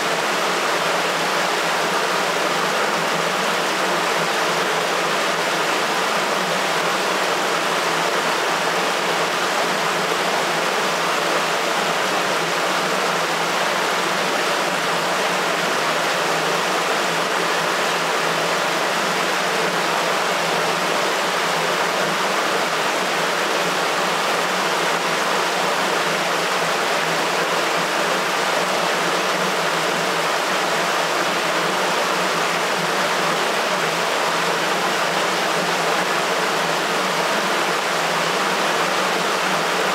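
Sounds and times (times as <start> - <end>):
water rushing through sewer: 0.0 - 39.9.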